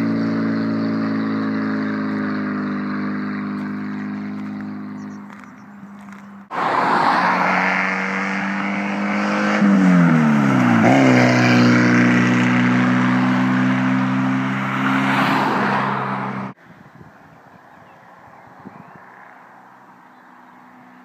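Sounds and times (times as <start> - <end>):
loud raw car engine passing: 0.0 - 16.6.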